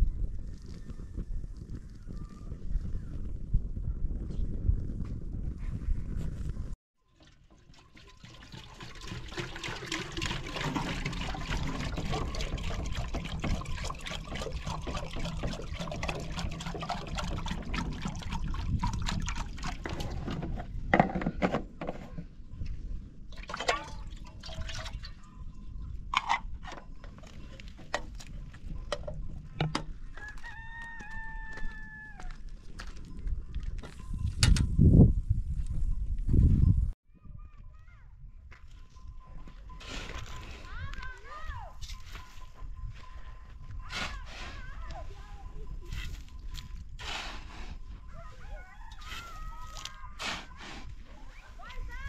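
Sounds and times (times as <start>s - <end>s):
water pouring into metal kettle: 7.1s - 20.3s, 23.4s - 25.1s
cap screwing knocks and clicks: 26.1s - 30.0s.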